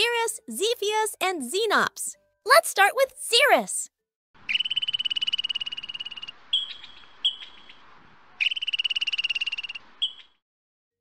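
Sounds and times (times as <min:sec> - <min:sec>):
ground squirrel chirping trill: 0:04.4 - 0:07.8, 0:08.4 - 0:10.4.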